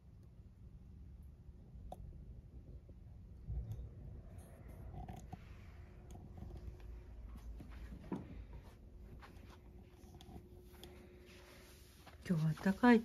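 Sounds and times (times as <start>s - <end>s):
faint steady hum: 0.0s - 13.0s
faint taps and rustles: 6.3s - 13.0s.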